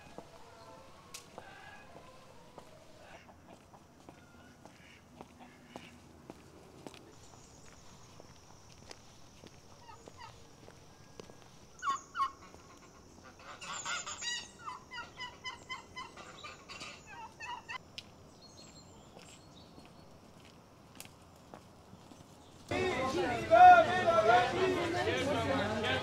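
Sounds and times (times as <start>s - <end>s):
turkeys gobbling: 9.8s - 11.2s, 11.8s - 17.8s.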